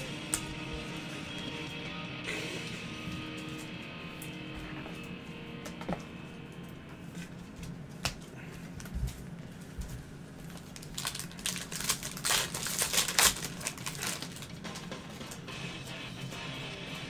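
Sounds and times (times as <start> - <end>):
cards crinkling and rustling: 7.2 - 15.0.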